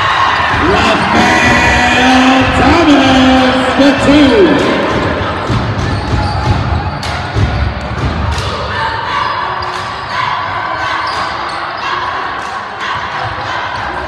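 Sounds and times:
spectators chattering: 0:00.0 - 0:14.0.

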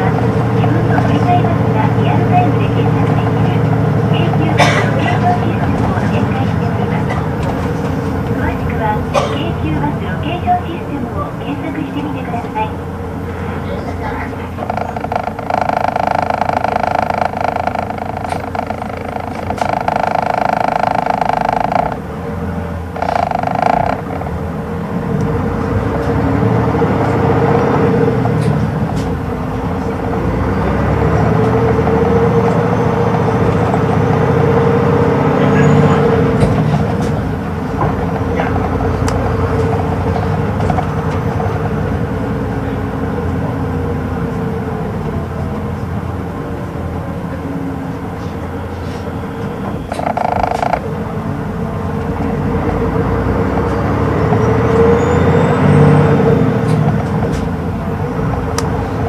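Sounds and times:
bus diesel engine running: 0:00.0 - 0:59.0
steady high-pitched tone: 0:14.6 - 0:22.0.

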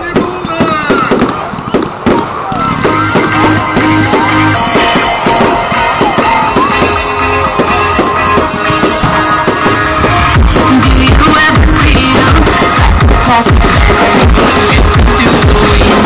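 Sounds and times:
rock music with guitar and drums: 0:02.7 - 0:16.0.

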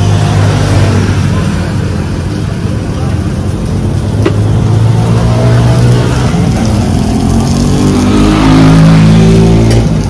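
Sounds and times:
vehicle engine revving: 0:03.4 - 0:10.0.

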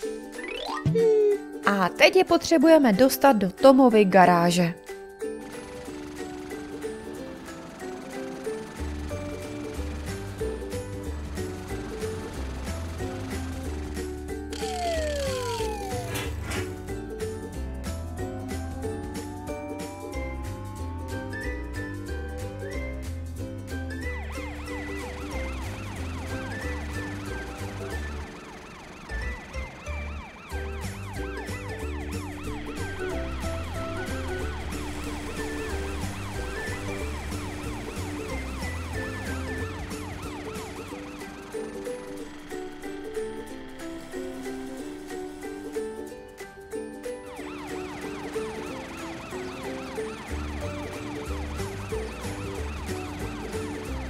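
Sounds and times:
background music with bass: 0:07.4 - 0:28.3, 0:29.2 - 0:54.0
cartoon siren wailing: 0:14.5 - 0:16.5, 0:18.0 - 0:23.2, 0:24.0 - 0:43.0, 0:47.2 - 0:54.0.

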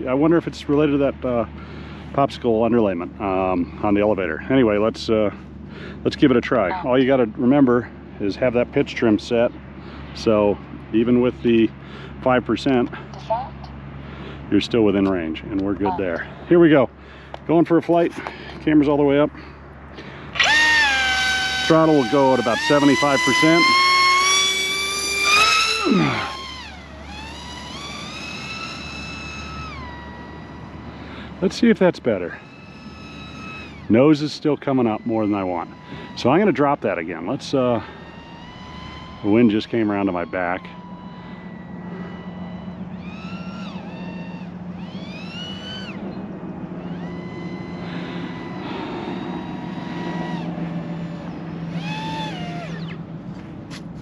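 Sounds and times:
low steady hum: 0:00.0 - 0:54.0
model plane motor whining: 0:20.0 - 0:53.8.

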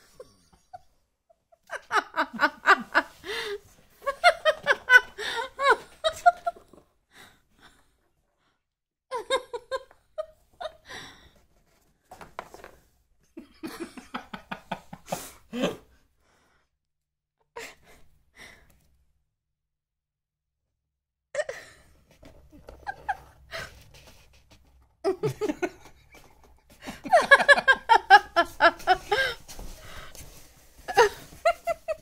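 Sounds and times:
woman laughing: 0:00.0 - 0:06.8, 0:22.5 - 0:23.8, 0:25.0 - 0:29.6, 0:30.9 - 0:32.0.

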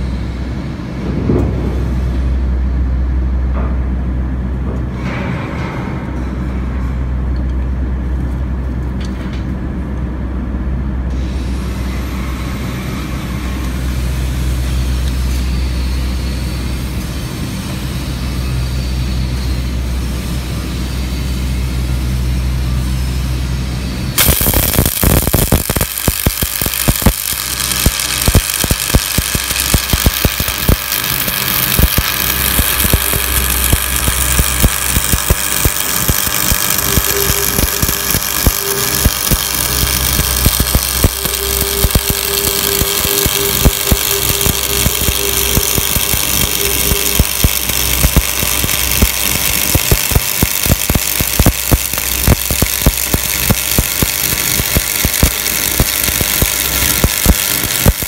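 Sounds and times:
low machine hum: 0:00.0 - 0:58.0
welding arc crackling and popping: 0:24.1 - 0:58.0.

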